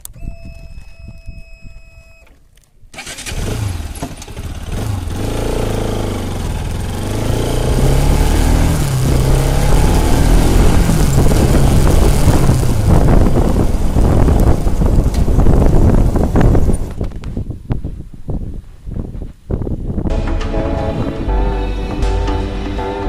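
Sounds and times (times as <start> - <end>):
wind and road noise: 0.0 - 22.8
vehicle engine accelerating: 3.0 - 16.9.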